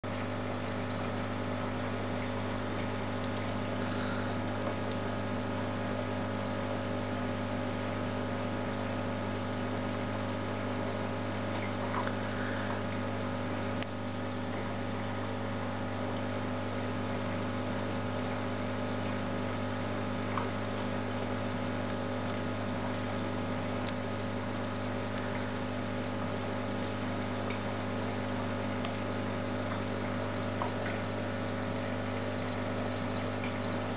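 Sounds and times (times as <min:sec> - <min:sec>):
aquarium pump humming: 0:00.0 - 0:33.9
moving water: 0:00.0 - 0:33.9.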